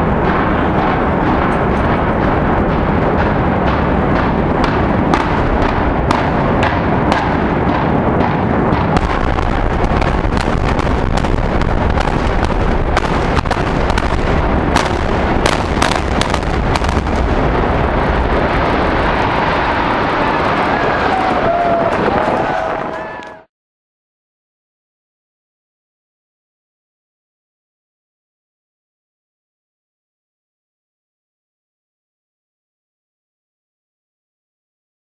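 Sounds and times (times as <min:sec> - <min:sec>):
building collapsing rumble: 0:00.0 - 0:23.5.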